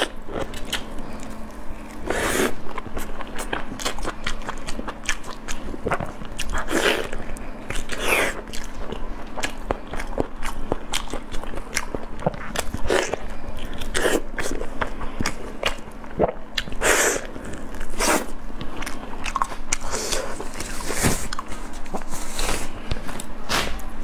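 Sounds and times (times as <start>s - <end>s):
biting and chewing meat: 0.0s - 22.1s.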